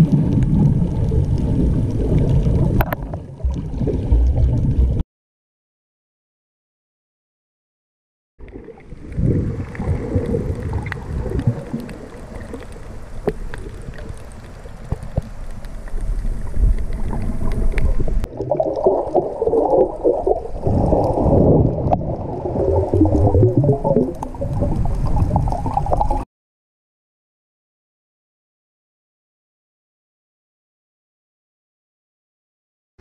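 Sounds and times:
muffled water sloshing underwater: 0:00.0 - 0:05.0, 0:08.4 - 0:26.2.

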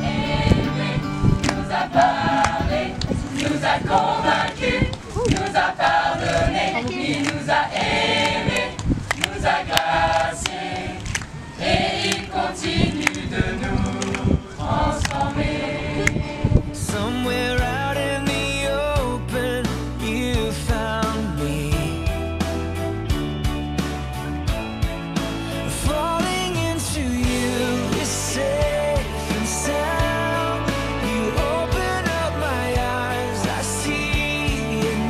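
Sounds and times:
young people singing in chorus: 0:00.0 - 0:17.9, 0:27.2 - 0:35.0.

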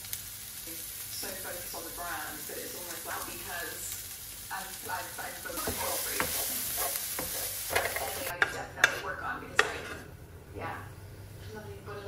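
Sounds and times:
food sizzling in a frying pan: 0:00.0 - 0:10.0.

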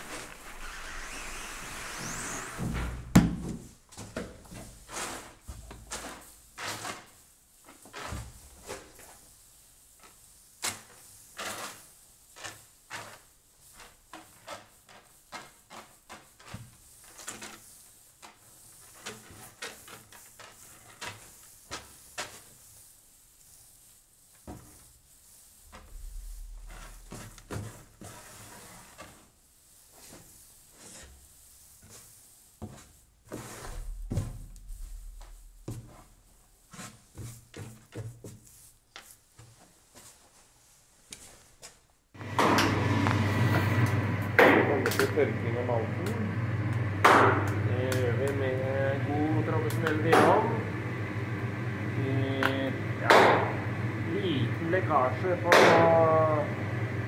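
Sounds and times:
grain swishing and scraping: 0:00.0 - 0:03.1, 0:04.5 - 0:41.7
low rumble: 0:25.7 - 0:27.5, 0:33.6 - 0:36.4.

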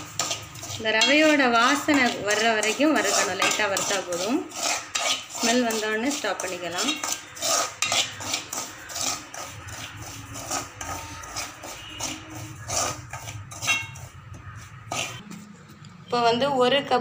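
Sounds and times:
metal spoon scraping metal pan: 0:00.0 - 0:15.6.

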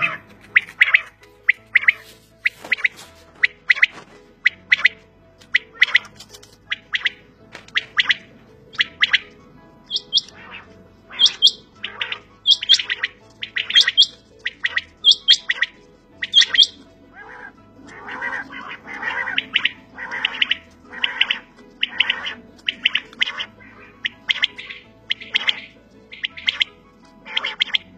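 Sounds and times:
quails calling: 0:00.0 - 0:27.9.

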